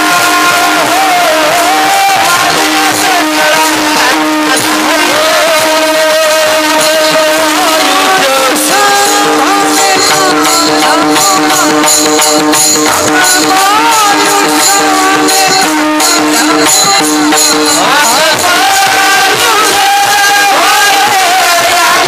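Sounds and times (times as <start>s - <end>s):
hand cymbals clashing: 0.0s - 22.0s
voices singing devotional song: 0.0s - 22.0s.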